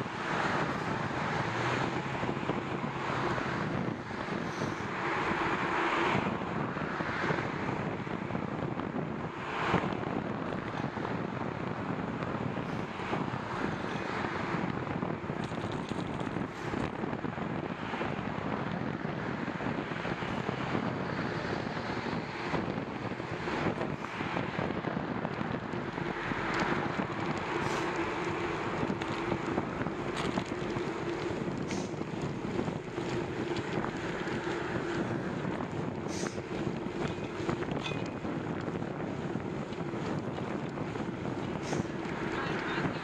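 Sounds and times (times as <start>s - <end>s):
wind on microphone: 0.0s - 43.0s
tyre noise: 21.3s - 43.0s.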